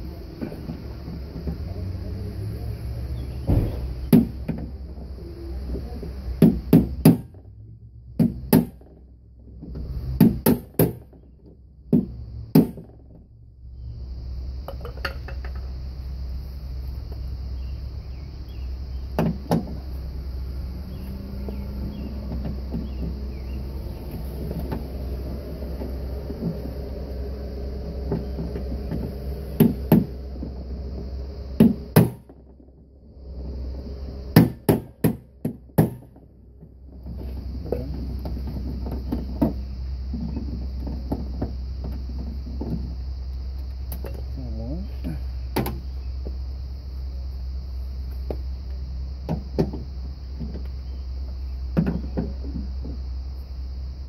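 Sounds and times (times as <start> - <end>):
low hum: 0.0 - 54.0.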